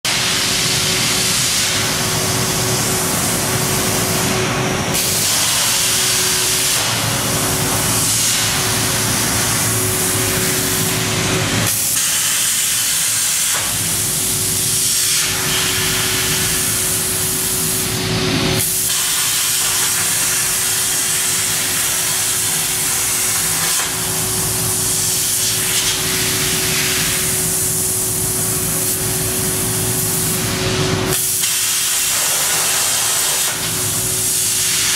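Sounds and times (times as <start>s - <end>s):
plasma torch hiss: 0.1s - 34.9s
machine hum: 0.4s - 12.0s.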